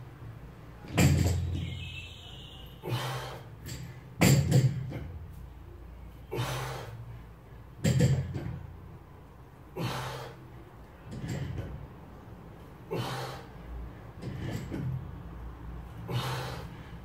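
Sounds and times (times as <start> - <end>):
person breathing forcefully: 9.7 - 10.5, 12.8 - 14.7, 16.0 - 17.0.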